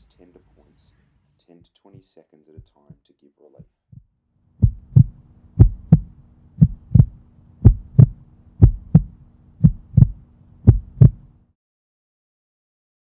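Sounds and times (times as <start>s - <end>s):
heartbeat thumps: 1.6s - 3.0s, 3.6s - 11.3s
faint steady hum: 4.4s - 11.5s.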